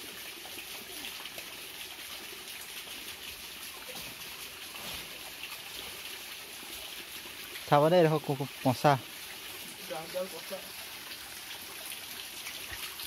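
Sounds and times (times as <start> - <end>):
stream trickling over rocks: 0.0 - 13.0.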